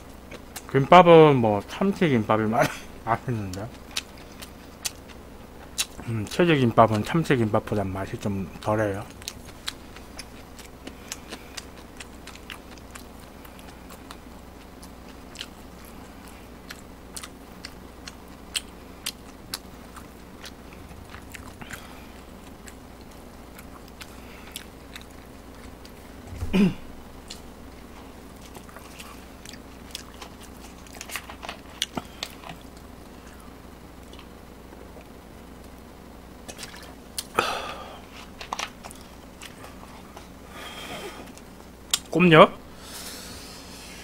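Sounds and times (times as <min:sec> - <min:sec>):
chewing food: 0:00.2 - 0:00.7, 0:03.4 - 0:07.2, 0:08.2 - 0:26.2, 0:27.2 - 0:35.8, 0:38.1 - 0:40.4.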